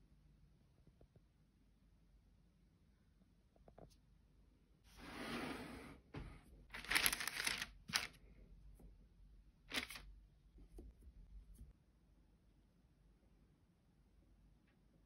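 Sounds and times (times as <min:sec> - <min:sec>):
baking paper rustling: 0:06.7 - 0:08.2, 0:09.7 - 0:10.1
paper crackle: 0:06.7 - 0:08.2, 0:09.7 - 0:10.1.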